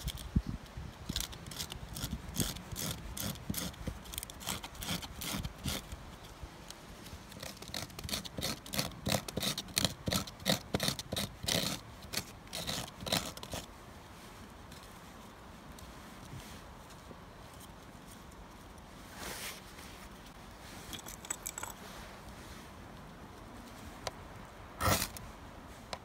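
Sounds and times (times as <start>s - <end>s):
knife shaving wood: 1.0s - 6.4s, 7.0s - 13.7s, 24.8s - 25.2s.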